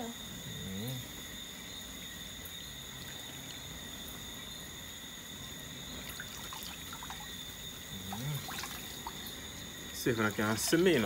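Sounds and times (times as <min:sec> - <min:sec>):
night insects chorus: 0:00.0 - 0:11.0
faint water splashes: 0:05.7 - 0:11.0.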